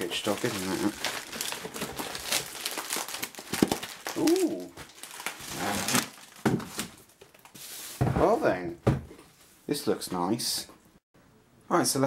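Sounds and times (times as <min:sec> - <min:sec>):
bubble wrap crinkling: 0:00.0 - 0:07.9.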